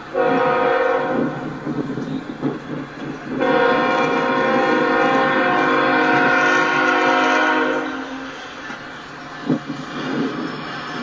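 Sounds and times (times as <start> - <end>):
passing train rumble: 0.0 - 11.0
locomotive air horn blast: 0.1 - 1.5, 3.4 - 8.4.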